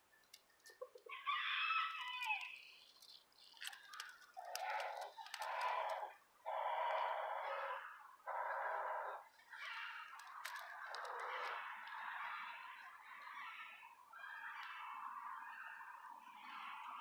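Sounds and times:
rooster crowing: 1.1s - 2.6s.

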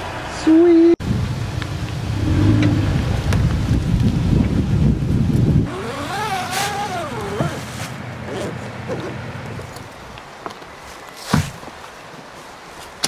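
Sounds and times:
truck engine rumbling: 1.0s - 10.4s
pitched whine: 1.5s - 3.7s.

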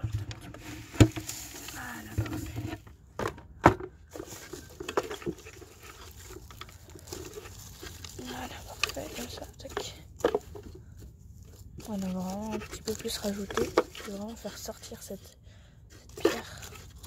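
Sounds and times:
hands rustling dry leaves: 0.6s - 2.6s, 4.1s - 15.2s.

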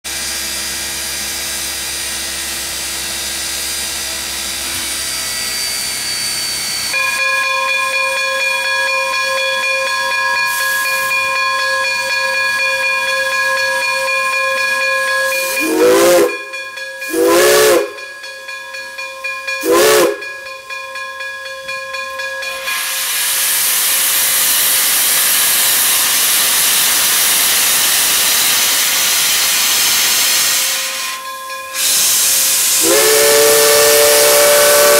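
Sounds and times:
loud steam blowing off: 0.1s - 7.2s, 10.4s - 11.4s, 15.2s - 16.5s, 17.1s - 18.0s, 19.6s - 20.3s, 22.5s - 34.9s
steam whistle blasts: 4.6s - 12.2s, 13.2s - 18.2s, 19.6s - 20.4s, 22.5s - 34.9s
steam hissing: 10.2s - 18.2s, 19.6s - 20.4s, 22.5s - 34.9s.

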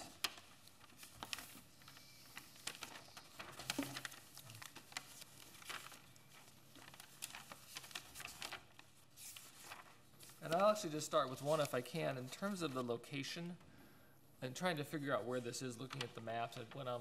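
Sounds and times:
papers rustling: 0.0s - 13.0s.

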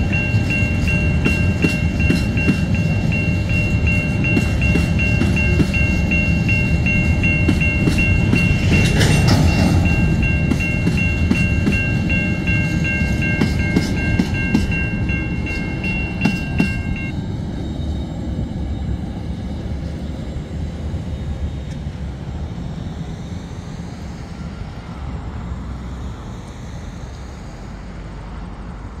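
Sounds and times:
level crossing bell ringing: 0.0s - 17.1s
train wheels clicking over rail joints: 0.0s - 17.1s
train rumble: 0.0s - 29.0s.

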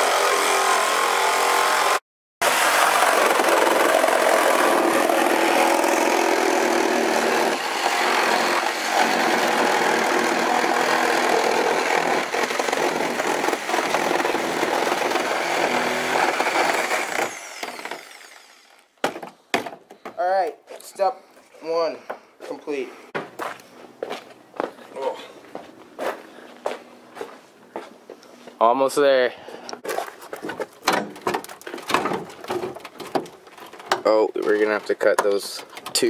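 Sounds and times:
reciprocating saw cutting sheet metal: 0.0s - 18.9s.

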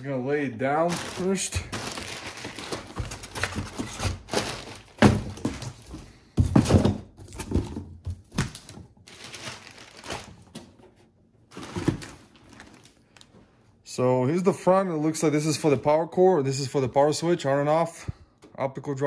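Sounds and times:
computer tower knocks and thumps: 2.6s - 8.9s.

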